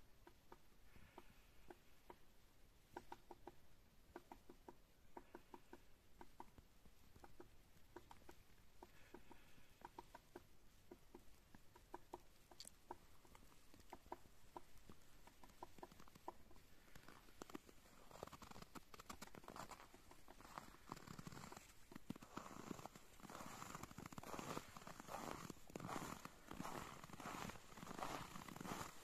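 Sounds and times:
footsteps squeaking in snow: 18.1s - 29.0s.

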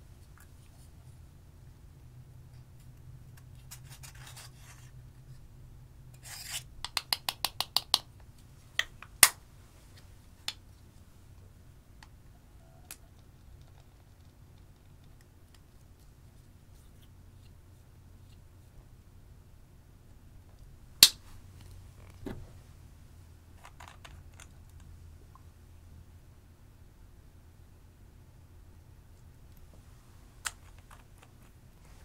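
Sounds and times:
tweezers scraping plastic: 6.2s - 6.7s
sharp clicks and taps: 6.8s - 9.4s.

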